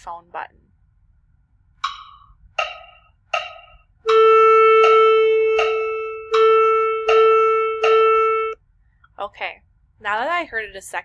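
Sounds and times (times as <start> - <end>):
held pitch tone: 1.8 - 8.6
wood-block clicks: 1.8 - 8.6.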